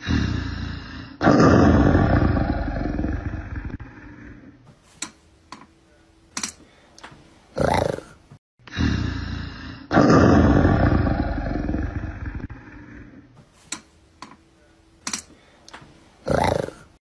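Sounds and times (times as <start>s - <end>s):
big cat roaring: 0.0s - 4.6s, 7.6s - 13.2s, 16.2s - 17.0s.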